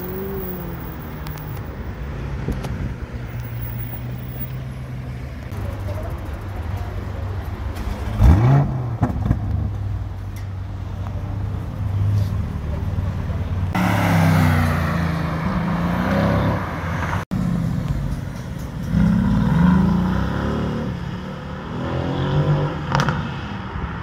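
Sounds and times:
car engine revving: 0.0s - 1.8s
car accelerating past: 13.7s - 17.2s.

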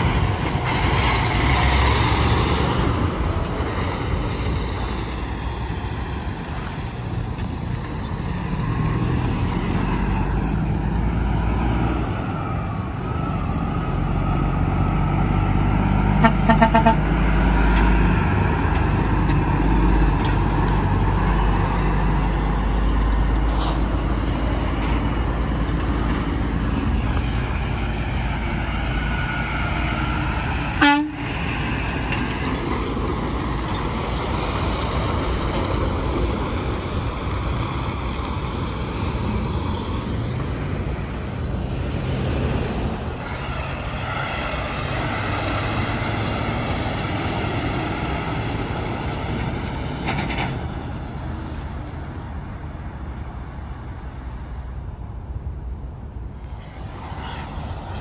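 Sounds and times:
highway traffic rumble: 0.0s - 58.0s
short horn toots: 16.2s - 17.1s, 30.8s - 31.2s.

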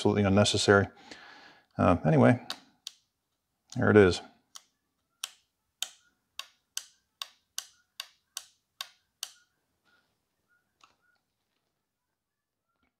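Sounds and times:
sharp metallic switch clicks: 4.5s - 9.5s.

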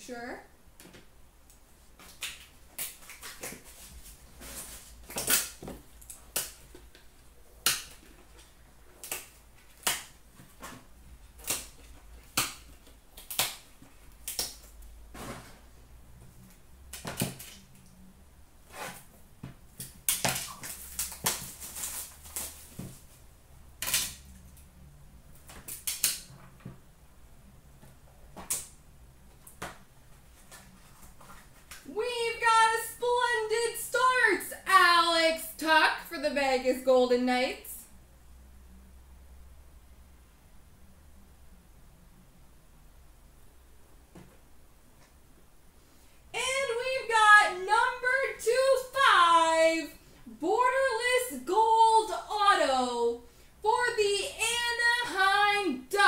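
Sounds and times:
packaging rustling: 20.1s - 23.2s.

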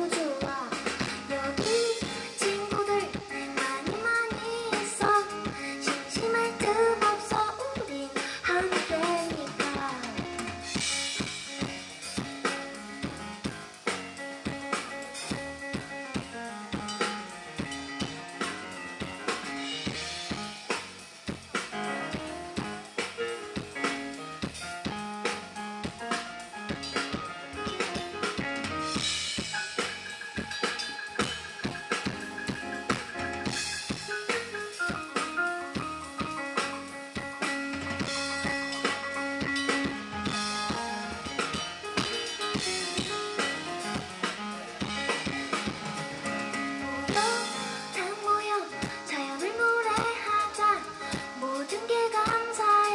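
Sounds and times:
person singing: 0.0s - 10.5s, 47.1s - 52.9s
drum kit beat: 0.0s - 52.9s
keyboard chords: 0.0s - 52.9s.

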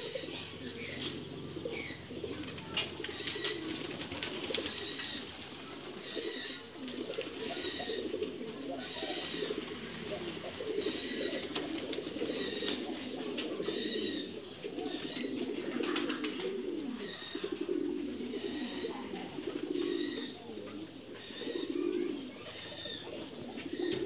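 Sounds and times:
pigeons cooing: 0.0s - 24.0s.

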